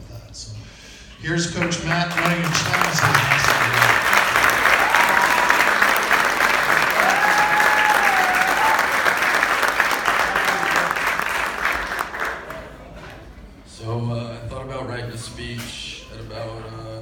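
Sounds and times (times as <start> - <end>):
audience applauding: 1.6 - 13.0
whistles from audience: 7.0 - 9.2.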